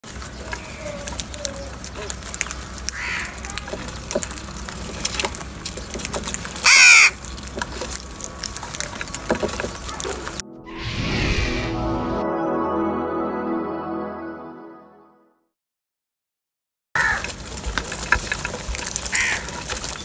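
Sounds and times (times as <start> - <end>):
crows pecking grain: 0.0 - 10.4, 17.0 - 20.0
faint crow call: 2.9 - 3.6, 6.6 - 7.2, 17.0 - 17.3, 19.1 - 19.5
loud harsh crow caw: 3.0 - 3.4, 6.6 - 7.2, 17.0 - 17.2, 19.1 - 19.4.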